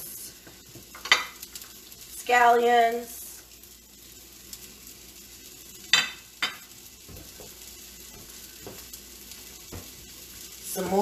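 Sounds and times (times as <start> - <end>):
vegetables sizzling in a pan: 0.0 - 11.0.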